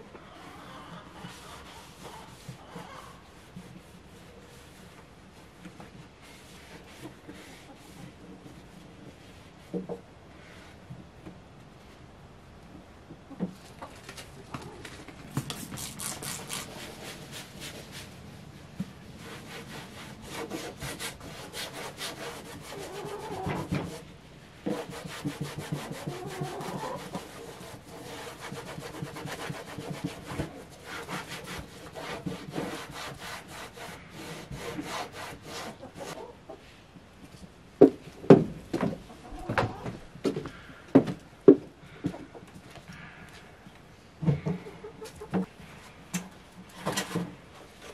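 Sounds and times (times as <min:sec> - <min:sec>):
rag scrubbing plastic cooler: 0:19.2 - 0:36.1.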